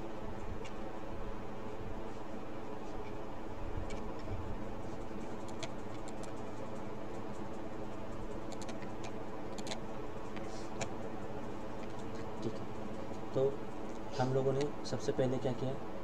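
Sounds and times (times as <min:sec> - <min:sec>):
electrical hum: 0:00.0 - 0:16.0
computer mouse clicks: 0:05.4 - 0:07.4, 0:08.1 - 0:11.0.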